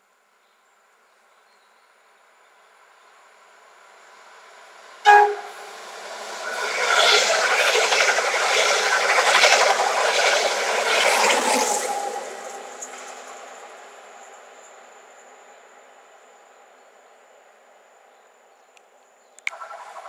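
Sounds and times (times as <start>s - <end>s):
train wheel and track noise: 3.3s - 17.8s, 19.4s - 20.0s
train horn blast: 5.0s - 5.8s.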